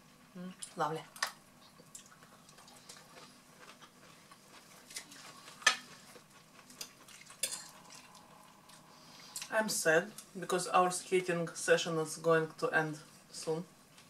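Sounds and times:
forks clinking on plates: 6.8 - 8.0.

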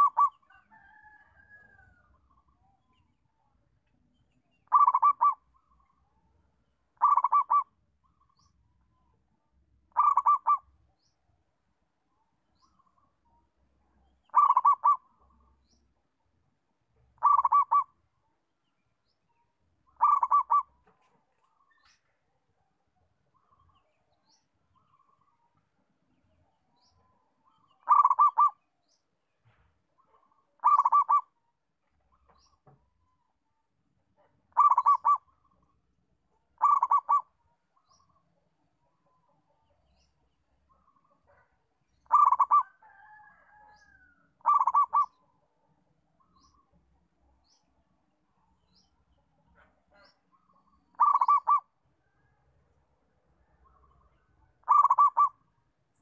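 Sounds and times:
dove cooing: 0.0 - 0.4, 4.6 - 5.4, 7.0 - 7.7, 9.9 - 10.7, 14.3 - 15.0, 17.2 - 18.0, 20.0 - 20.8, 27.8 - 28.6, 30.6 - 31.3, 34.5 - 35.3, 36.6 - 37.3, 42.0 - 45.2, 50.9 - 51.7, 54.6 - 55.4.

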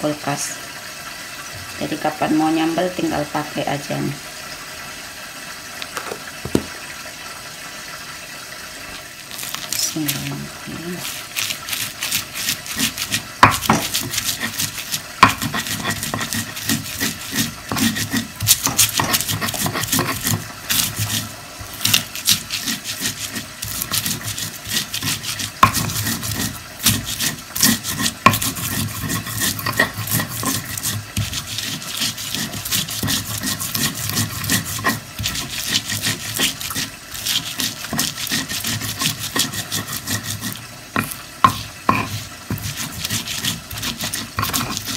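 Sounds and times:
pestle grinding in a mortar: 9.3 - 44.9.

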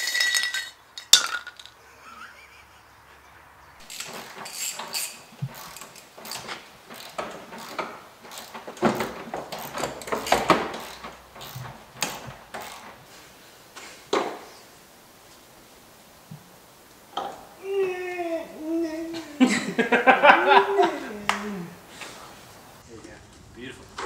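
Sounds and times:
clicks and rattles of car parts: 0.0 - 1.8, 3.8 - 13.1.

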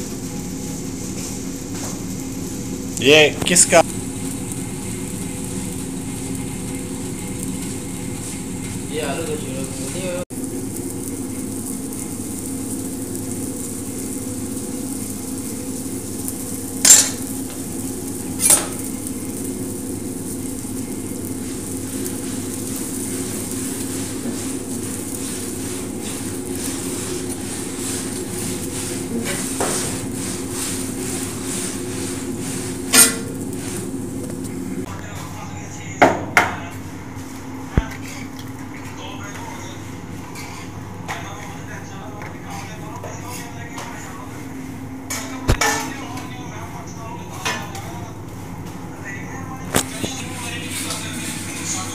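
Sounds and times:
metal ladle knocking on iron griddle: 16.8 - 17.2.

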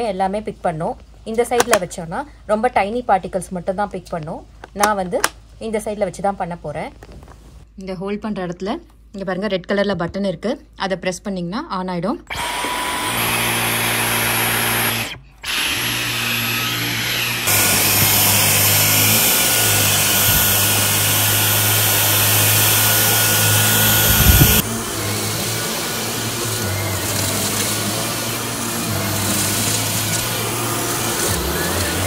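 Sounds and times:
vacuum cleaner running: 12.3 - 32.0.

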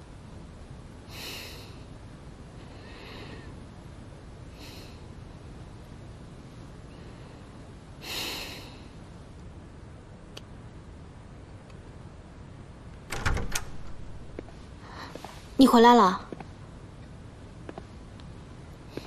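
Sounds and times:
door latch click: 13.1 - 14.2
door knocks: 13.1 - 14.4.

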